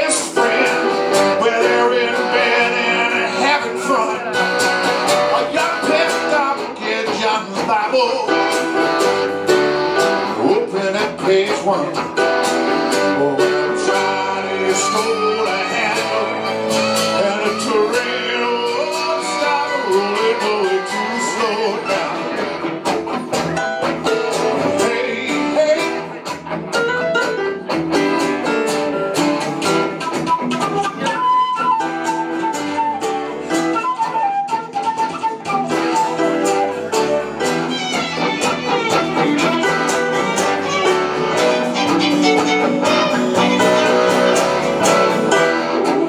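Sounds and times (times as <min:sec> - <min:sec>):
live band music: 0:00.0 - 0:46.0
fiddle: 0:35.9 - 0:46.0.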